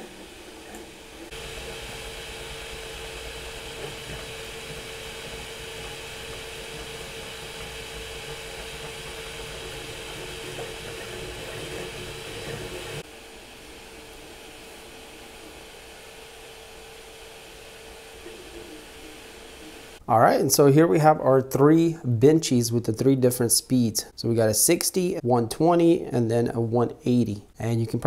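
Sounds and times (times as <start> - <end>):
printer motors humming: 0.0 - 20.0.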